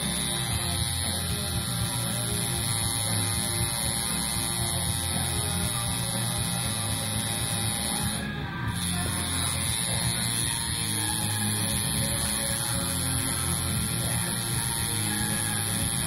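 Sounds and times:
background music: 0.0s - 16.0s
tattoo machine buzzing: 0.0s - 16.0s.

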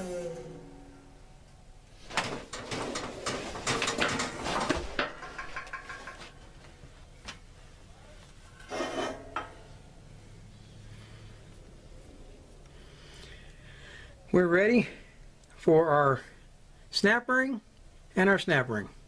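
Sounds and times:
steel parts clinking and scraping: 2.2s - 6.5s, 8.6s - 9.8s.

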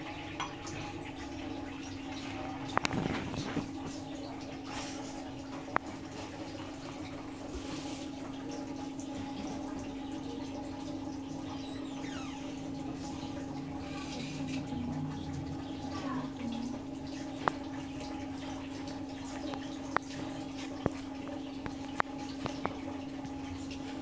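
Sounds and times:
gravy simmering and bubbling: 0.0s - 24.0s
steady low hum: 0.0s - 24.0s.

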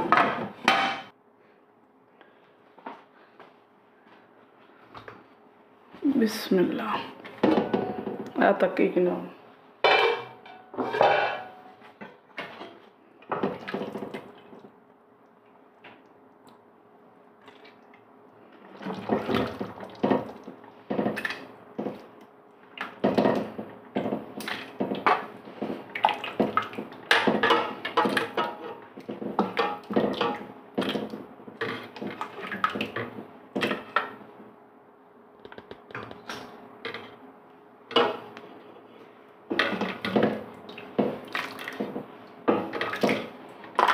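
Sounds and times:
metal ladle clinking on pots: 9.8s - 11.5s
liquid splashing and pouring: 40.7s - 41.9s.

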